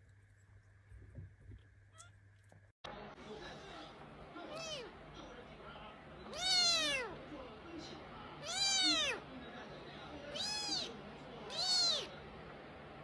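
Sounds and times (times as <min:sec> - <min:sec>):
kitten meowing: 0:01.9 - 0:02.1, 0:06.3 - 0:07.1, 0:08.4 - 0:09.2, 0:10.3 - 0:10.9, 0:11.5 - 0:12.1.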